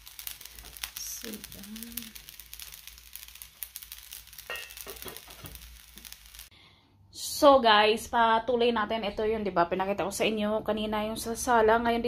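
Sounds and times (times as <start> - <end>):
rice sizzling in hot oil: 0.0 - 6.5.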